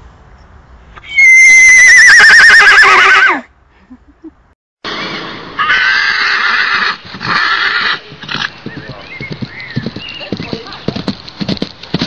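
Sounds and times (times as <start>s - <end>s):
horse whinnying: 1.0s - 3.5s, 5.6s - 8.5s.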